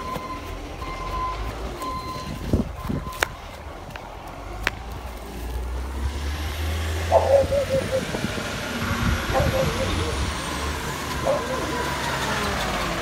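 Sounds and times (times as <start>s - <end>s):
truck engine running: 0.0s - 13.0s
tyres hissing on wet road: 4.4s - 7.2s, 8.0s - 13.0s.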